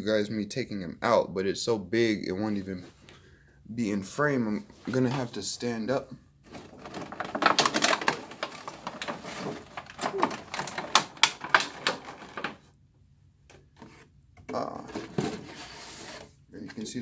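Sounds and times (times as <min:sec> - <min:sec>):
plastic packaging crinkling and clicking: 0:06.5 - 0:12.7.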